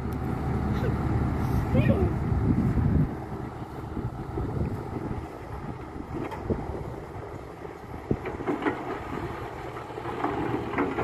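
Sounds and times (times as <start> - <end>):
excavator diesel engine running: 0.0 - 11.0
sharp knocks and clanks: 8.1 - 9.3.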